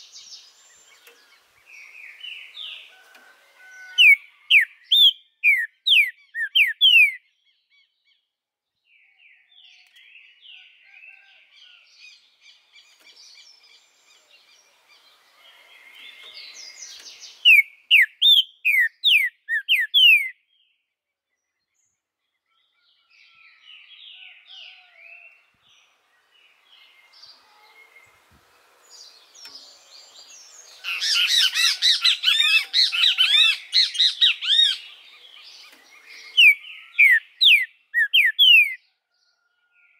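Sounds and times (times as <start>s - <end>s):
bird twittering: 4.0s - 7.2s, 15.9s - 20.4s, 29.3s - 38.8s
bird singing whistled notes: 4.0s - 7.9s, 15.8s - 20.8s, 28.9s - 38.8s.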